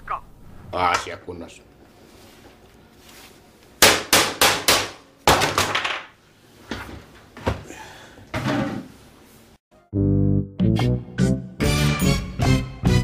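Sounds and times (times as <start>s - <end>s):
sharp knocks and bangs: 3.8s - 6.1s.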